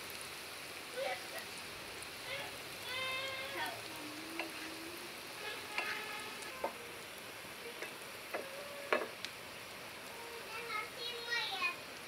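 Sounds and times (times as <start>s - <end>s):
oil sizzling in a pan: 0.0s - 12.0s
fork clicking against pan: 4.4s - 4.6s.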